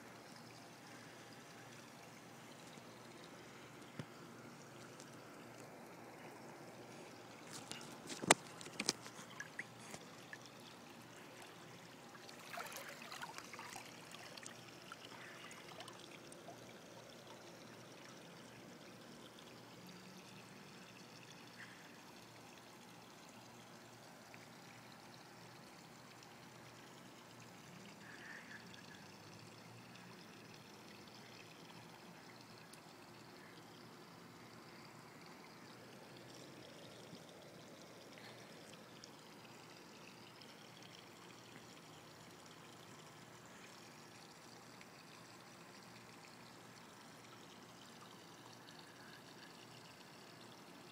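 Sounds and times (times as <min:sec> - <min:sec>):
pool water splashing: 0:00.0 - 0:21.6
water trickling: 0:00.0 - 0:50.9.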